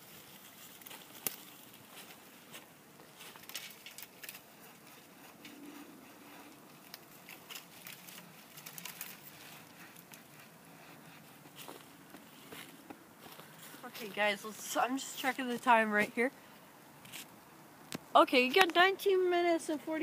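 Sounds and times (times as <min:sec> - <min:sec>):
faint crackling and clicks: 0:00.0 - 0:15.7, 0:17.0 - 0:19.0.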